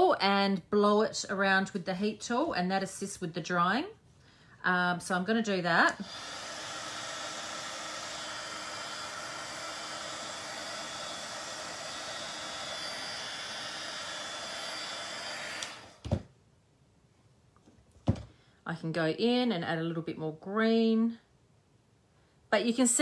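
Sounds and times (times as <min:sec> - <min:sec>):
heat tool blowing hot air: 0:05.8 - 0:16.0.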